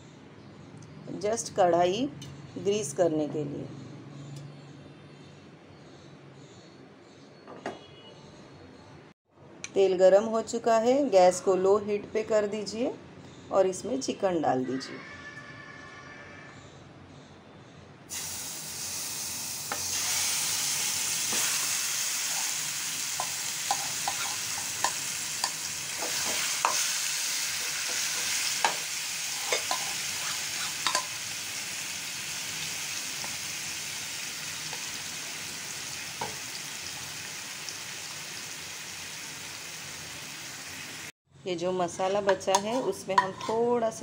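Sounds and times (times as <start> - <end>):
chicken sizzling in a pan: 18.1 - 41.1
wooden spatula scraping a pan: 27.6 - 31.1, 42.0 - 43.8.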